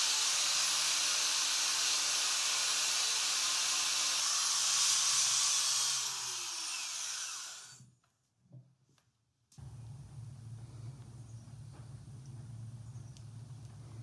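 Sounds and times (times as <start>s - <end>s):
angle grinder motor: 0.0s - 7.8s.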